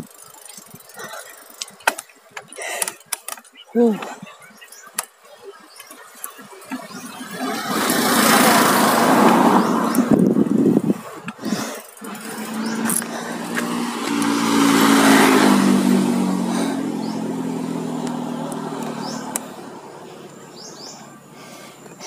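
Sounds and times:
motor vehicle passing by: 0:05.9 - 0:10.9, 0:11.6 - 0:22.0.

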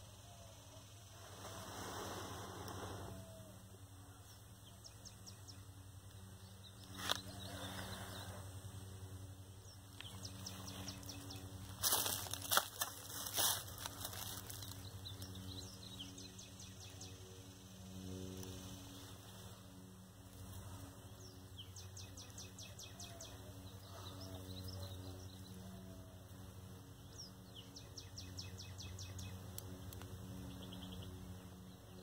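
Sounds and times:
twig fire crackling: 0:09.9 - 0:15.3, 0:29.3 - 0:30.4
dry twigs and leaves rustling: 0:09.9 - 0:15.8.

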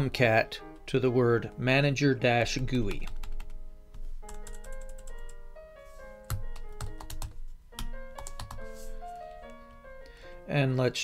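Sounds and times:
quiet background music: 0:00.0 - 0:11.0
keyboard typing: 0:02.9 - 0:05.4, 0:06.2 - 0:09.6.

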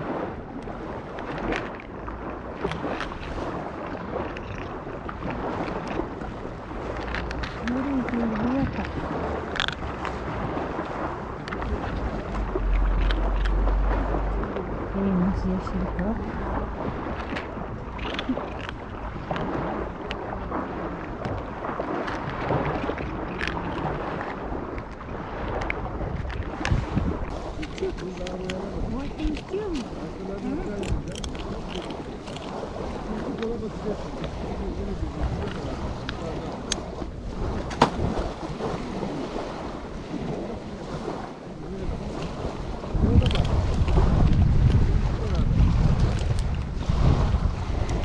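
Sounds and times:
sea at the shoreline: 0:00.0 - 0:48.0
wind noise: 0:00.0 - 0:48.0
cat crunching dry kibble: 0:18.0 - 0:19.5, 0:22.0 - 0:24.2, 0:30.7 - 0:33.0.

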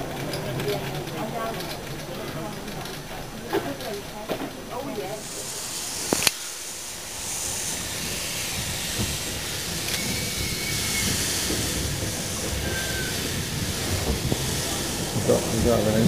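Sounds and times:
carriage rumbling: 0:00.0 - 0:16.0
steam train hissing: 0:04.5 - 0:16.0
sharp click: 0:06.1 - 0:06.4
thin squeals: 0:12.5 - 0:13.3.

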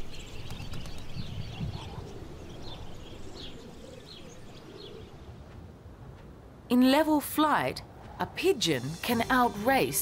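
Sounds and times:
birds chirping: 0:00.0 - 0:06.0.

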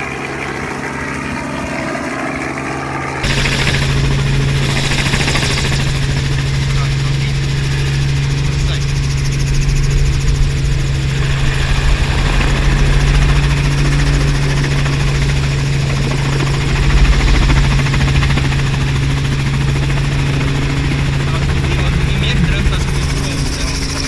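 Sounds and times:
helicopter engine and rotor drone: 0:00.0 - 0:24.0.

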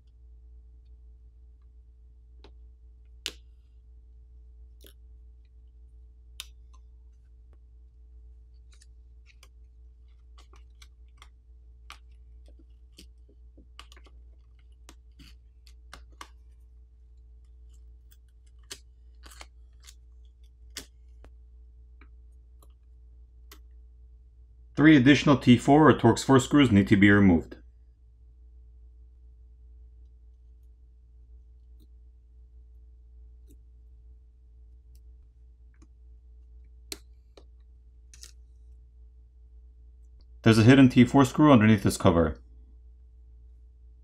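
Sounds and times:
low hum: 0:00.0 - 0:44.0
plastic pick clicks and crinkles: 0:08.5 - 0:21.3, 0:36.8 - 0:38.4.

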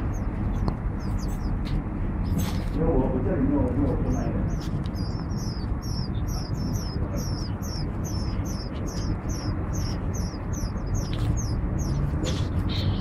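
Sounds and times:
low rumble: 0:00.0 - 0:13.0
nestlings chirping: 0:00.0 - 0:13.0.

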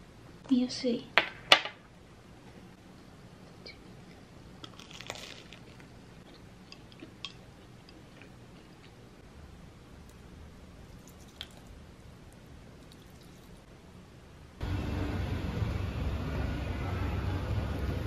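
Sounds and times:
chewing toast: 0:04.6 - 0:09.0, 0:10.9 - 0:11.8, 0:12.8 - 0:13.6.

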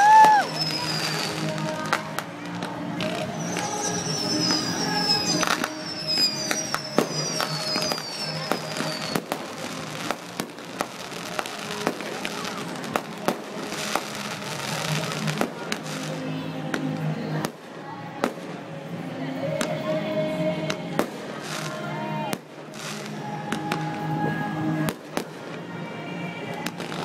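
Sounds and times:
fireworks falling whistles: 0:00.0 - 0:02.3, 0:02.9 - 0:16.2
fireworks bangs and crackles: 0:00.0 - 0:18.7, 0:20.7 - 0:24.1, 0:24.8 - 0:25.7, 0:26.4 - 0:27.0.

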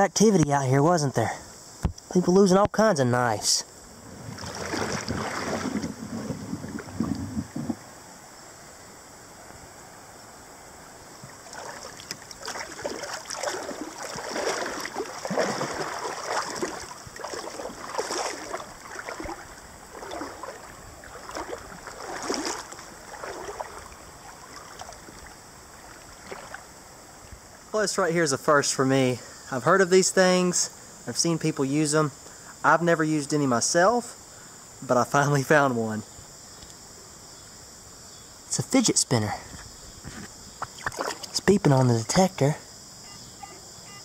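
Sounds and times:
wading through shallow water: 0:03.9 - 0:07.9, 0:11.0 - 0:27.6, 0:40.6 - 0:41.5.

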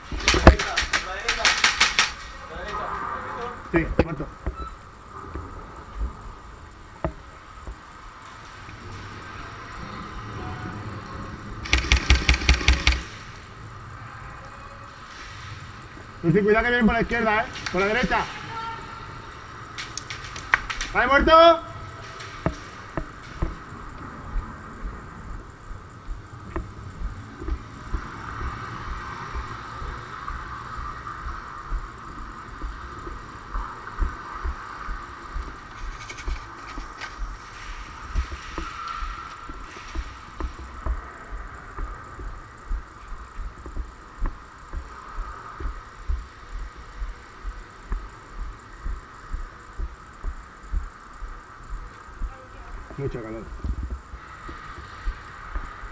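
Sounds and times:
steady background hum: 0:00.0 - 0:55.9
camera jostling: 0:11.7 - 0:13.1
muffled footsteps: 0:22.2 - 0:55.9.

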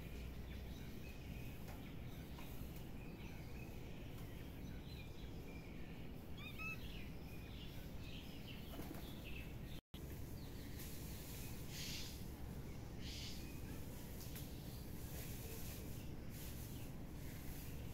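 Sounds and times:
faint bird chirps: 0:00.0 - 0:09.6, 0:10.6 - 0:17.9.

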